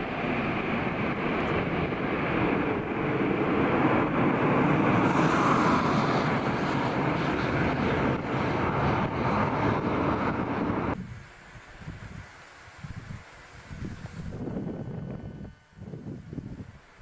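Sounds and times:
jet aircraft taking off: 0.0 - 11.0.

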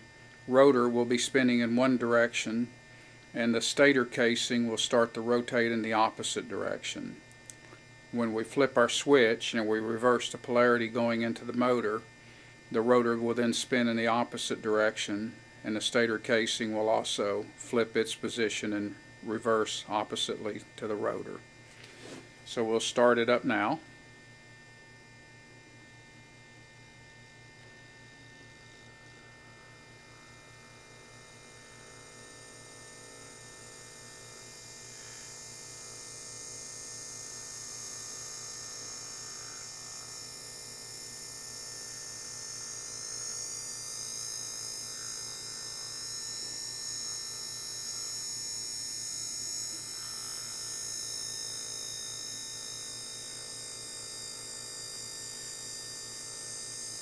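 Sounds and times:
electric motor whining: 30.0 - 57.0.

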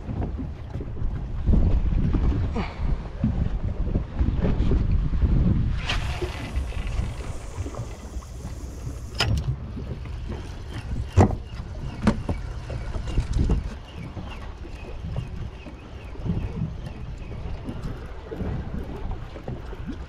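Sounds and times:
water noise: 0.0 - 20.0
wind buffeting microphone: 0.0 - 20.0
fishing reel cranking: 5.8 - 9.4.

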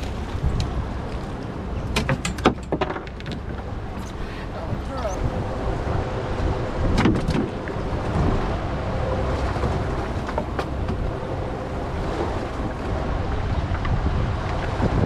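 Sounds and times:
boat engine idling: 0.0 - 15.0
sea washing around hull: 0.0 - 15.0
wind on microphone: 0.0 - 15.0.

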